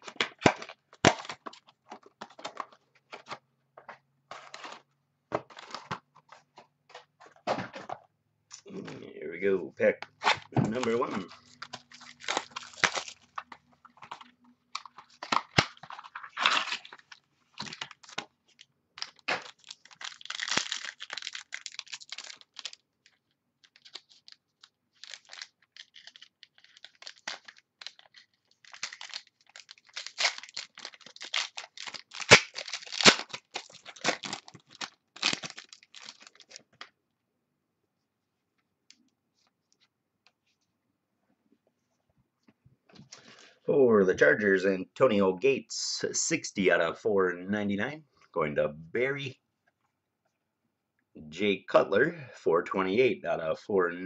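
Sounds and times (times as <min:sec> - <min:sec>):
foil wrapper tearing and crinkling: 0:10.2 - 0:36.7.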